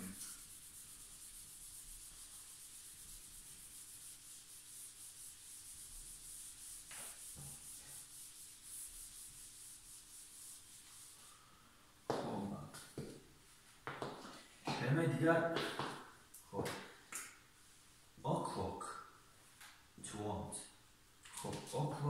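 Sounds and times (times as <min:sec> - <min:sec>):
eraser rubbing whiteboard: 0:00.0 - 0:11.4.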